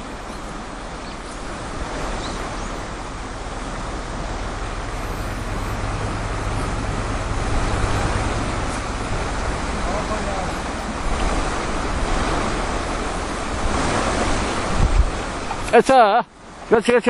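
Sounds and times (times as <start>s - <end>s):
stream flowing over stones: 0.0s - 17.0s
low rumble: 2.8s - 13.0s.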